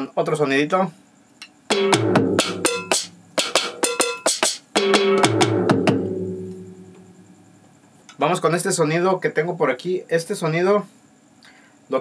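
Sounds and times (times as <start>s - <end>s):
drum pad hits with ringing tones: 1.7s - 7.7s.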